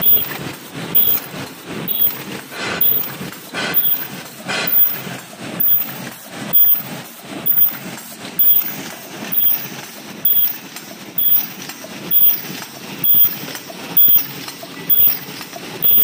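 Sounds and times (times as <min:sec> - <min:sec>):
paper cup machine clattering: 0:07.5 - 0:16.0.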